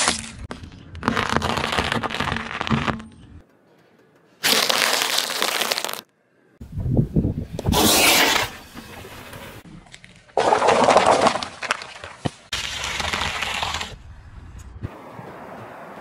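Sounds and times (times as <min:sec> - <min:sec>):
paper cups crunching flat: 0:00.9 - 0:03.0, 0:04.4 - 0:06.0, 0:10.4 - 0:14.0
celery stalks crunching: 0:04.4 - 0:06.1
slime bag squelching and bursting: 0:04.4 - 0:06.1
car tyre rolling on asphalt: 0:12.5 - 0:16.0.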